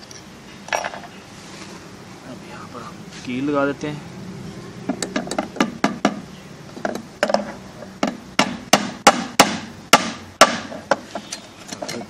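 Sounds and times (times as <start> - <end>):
hammer striking nail: 8.0 - 11.0.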